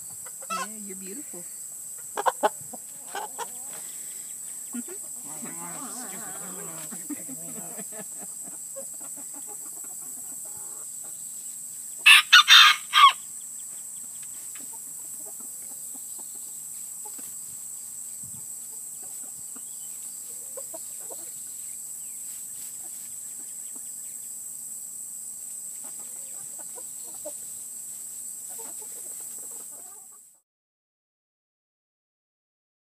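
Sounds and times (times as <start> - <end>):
hens clucking: 0.0 - 11.3, 12.0 - 17.4, 18.6 - 21.5, 25.7 - 27.5, 28.4 - 30.4
high-pitched hiss: 0.0 - 30.2
rooster crowing: 5.2 - 7.8, 12.0 - 13.2.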